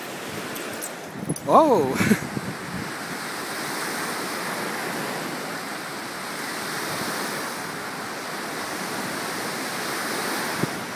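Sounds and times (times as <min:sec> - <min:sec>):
waves breaking on shore: 0:00.0 - 0:10.9.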